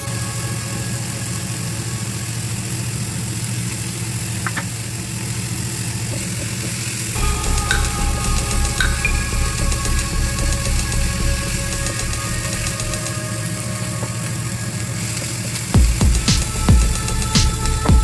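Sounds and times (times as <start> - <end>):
low drone music: 0.0 - 5.2, 5.8 - 18.0
pulsing bass: 7.2 - 14.8, 15.8 - 18.0.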